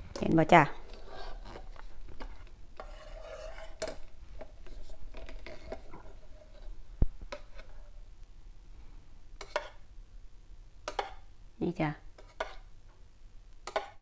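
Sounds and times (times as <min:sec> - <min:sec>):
whisk scraping in saucepan: 0:00.8 - 0:07.9.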